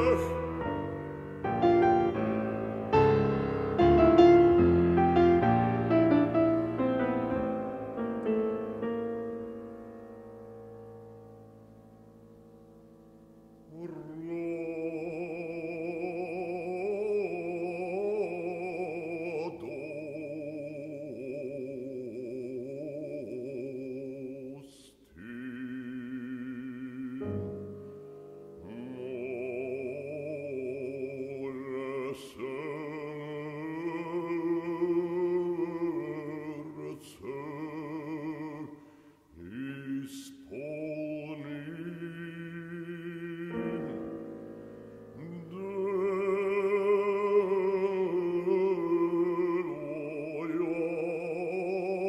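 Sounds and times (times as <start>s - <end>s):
bass voice singing with vibrato: 0.0s - 2.4s, 13.6s - 27.6s, 28.6s - 44.2s, 45.1s - 52.0s.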